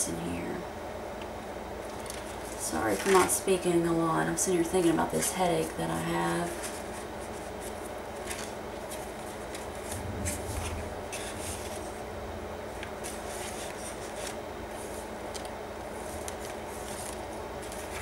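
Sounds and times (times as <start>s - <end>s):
steady low hum: 0.0s - 18.0s
paper pages rustling: 1.8s - 3.3s, 6.4s - 11.9s, 12.7s - 18.0s
soft low bump: 9.9s - 13.0s.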